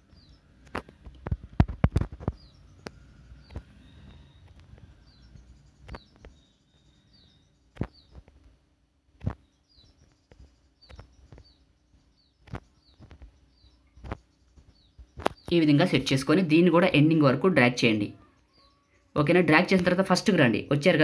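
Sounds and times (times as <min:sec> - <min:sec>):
small birds chirping: 0:00.0 - 0:21.0
sharp clicks: 0:05.8 - 0:06.4.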